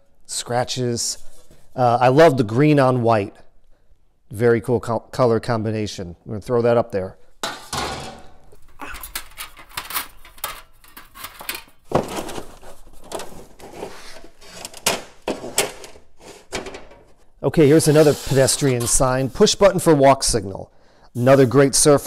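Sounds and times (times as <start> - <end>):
metal signs clattering and scraping: 7.4 - 19.2.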